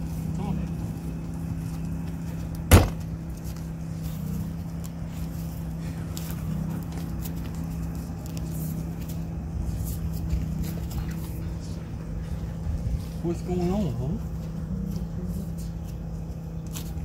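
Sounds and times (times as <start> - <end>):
low motor hum: 0.0 - 17.0
sharp knock: 2.7 - 3.0.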